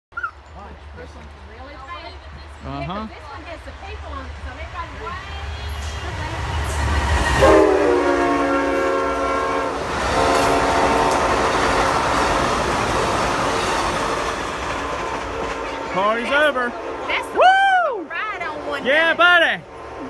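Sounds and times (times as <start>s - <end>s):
train air horn: 5.5s - 12.4s
train wheels clattering on rails: 9.8s - 16.7s.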